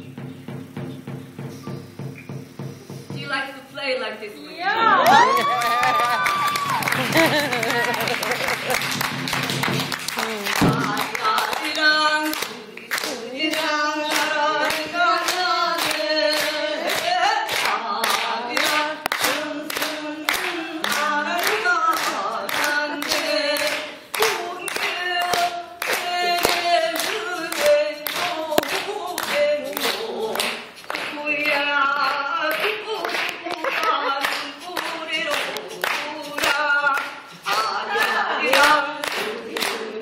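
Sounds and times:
hand claps: 5.0 - 40.0
person singing: 10.1 - 40.0.

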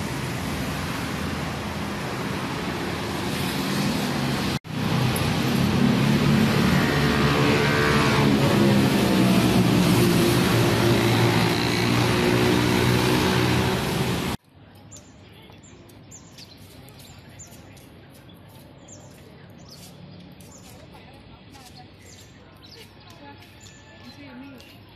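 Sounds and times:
road traffic: 0.0 - 24.9
small birds chirping: 14.6 - 24.9.

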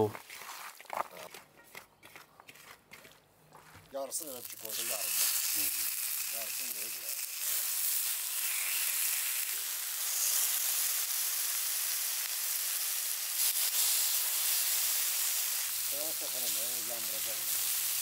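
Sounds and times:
fat sizzling on hot stone: 4.1 - 18.0.

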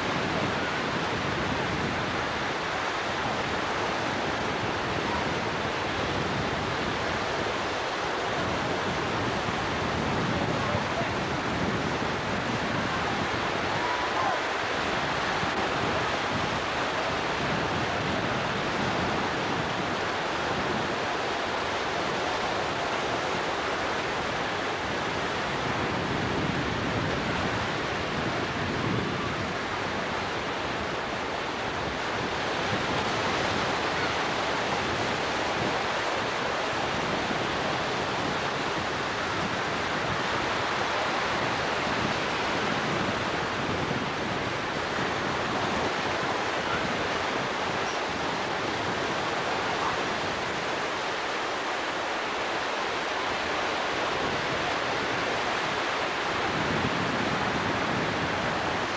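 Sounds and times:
ocean waves breaking: 0.0 - 58.9.

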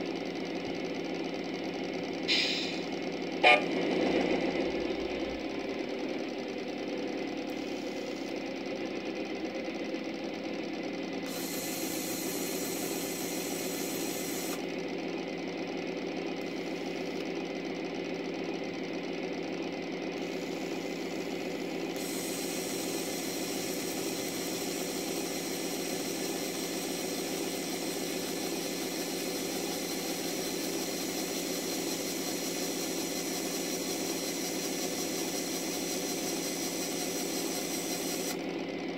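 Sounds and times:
small winch motor whirring: 7.3 - 8.6, 11.2 - 14.8, 16.3 - 17.5, 20.0 - 38.8.

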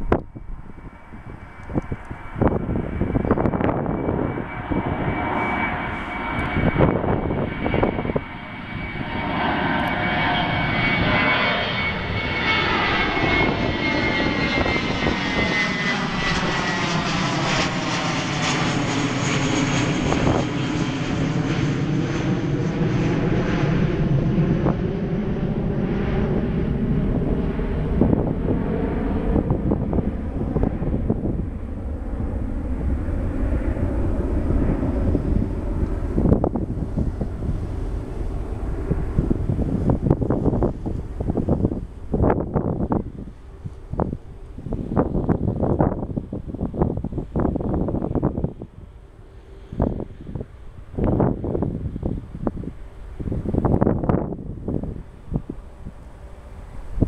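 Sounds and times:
high whine dropping in pitch: 0.0 - 28.7
turboprop engines droning: 0.0 - 57.0
wind buffeting microphone: 0.0 - 57.0.

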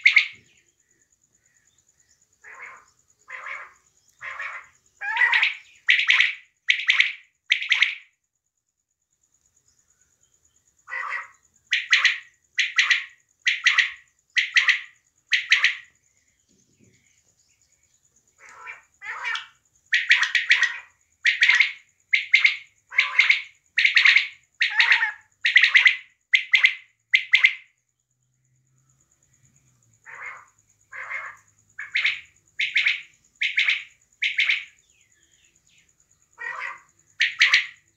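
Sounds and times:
quail calling: 0.0 - 0.5, 2.4 - 8.1, 10.9 - 15.9, 18.4 - 27.7, 30.0 - 34.8, 36.4 - 37.9.

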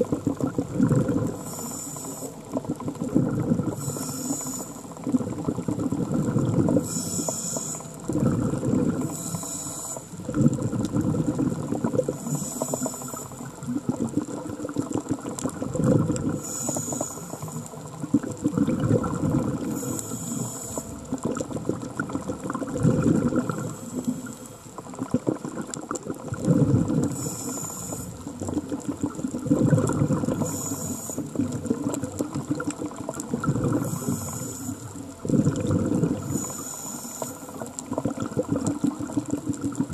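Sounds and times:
bubbling exhaled air: 0.0 - 39.9
regulator inhalation hiss: 1.4 - 2.4, 3.8 - 4.9, 6.8 - 7.9, 9.0 - 10.2, 12.2 - 13.4, 16.4 - 17.6, 19.6 - 21.0, 27.1 - 28.2, 30.3 - 31.4, 33.8 - 35.0, 36.2 - 37.6.

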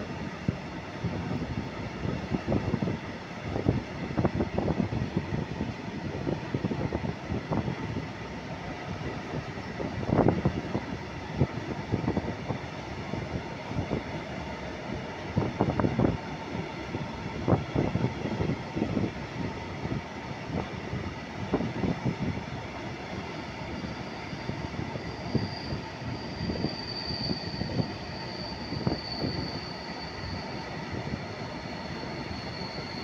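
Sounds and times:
high-pitched wheel squeal: 23.7 - 33.0.

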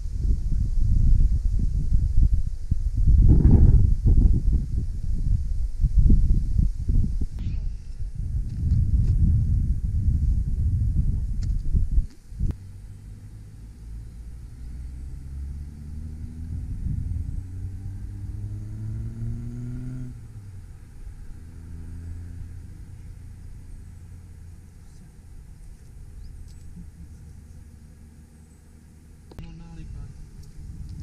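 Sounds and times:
steady low rumble: 0.0 - 31.0
vehicle engine accelerating: 12.4 - 29.4.

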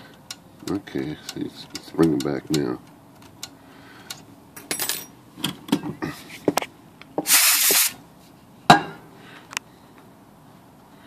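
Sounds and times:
typewriter mechanism clicking: 0.6 - 3.5
short hiss: 7.2 - 8.0.

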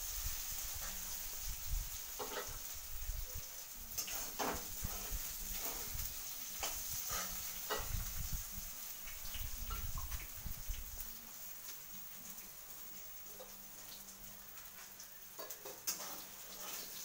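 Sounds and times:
food sizzling in oil: 0.0 - 17.0
spatula scraping and knocking pan: 4.0 - 6.0, 6.6 - 8.1, 15.4 - 17.0.

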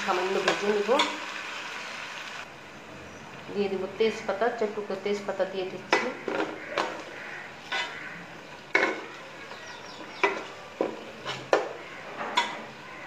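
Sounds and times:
faint sizzle of frying: 0.0 - 13.0
metal spoon scraping a pot: 5.9 - 9.2, 11.1 - 12.7.

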